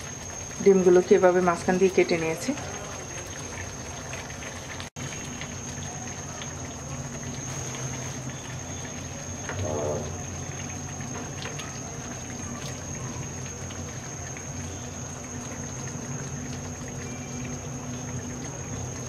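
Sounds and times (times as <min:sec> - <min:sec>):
gravy bubbling and popping: 0:00.0 - 0:19.0
steady hum: 0:06.6 - 0:11.1.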